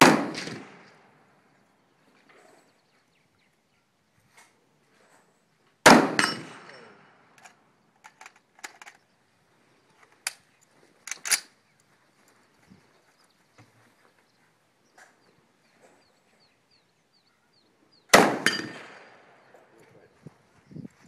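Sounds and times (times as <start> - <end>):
rifle shot: 0.0 - 1.1, 5.8 - 7.1, 18.1 - 19.4
sharp clicks and knocks: 7.4 - 9.1.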